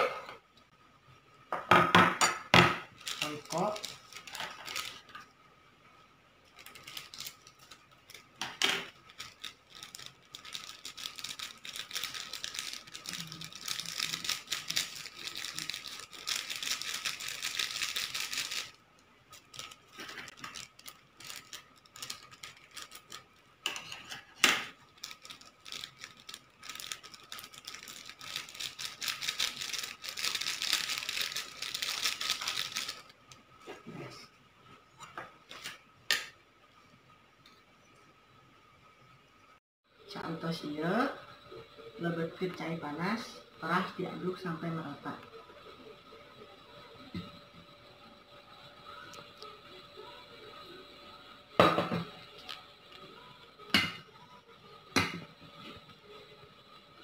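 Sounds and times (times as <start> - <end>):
foil sachets crinkling: 2.9 - 5.2, 6.5 - 33.3.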